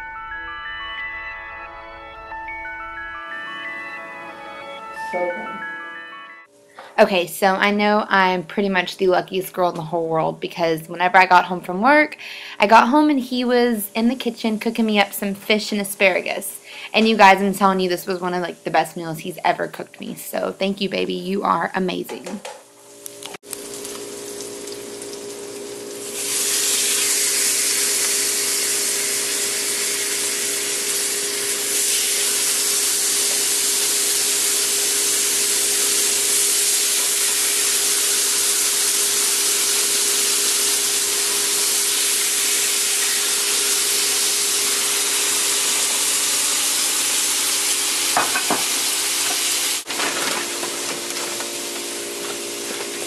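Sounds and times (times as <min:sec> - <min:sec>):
fish sizzling in frying pan: 0:22.8 - 0:53.0.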